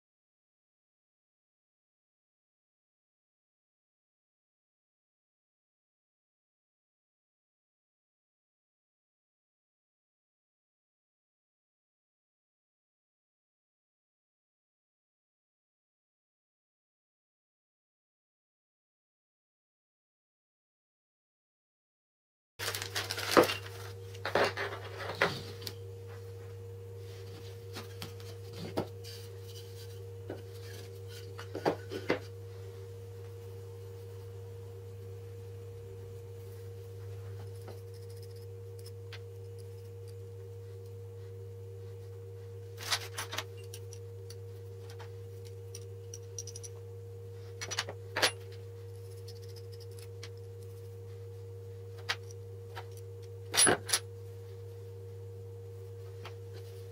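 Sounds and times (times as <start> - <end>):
steady two-tone hum: 22.6 - 56.9.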